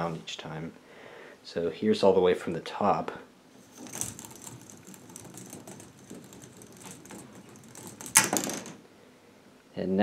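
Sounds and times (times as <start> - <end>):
plastic ball rattling in tubing: 3.6 - 8.8.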